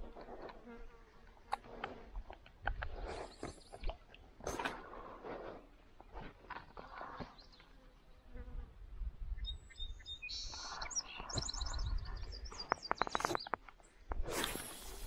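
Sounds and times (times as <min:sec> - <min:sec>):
small birds chirping: 0:03.1 - 0:04.0, 0:06.7 - 0:08.1, 0:09.3 - 0:15.0
low wind rumble: 0:08.5 - 0:12.7
sharp clicks: 0:12.6 - 0:13.8.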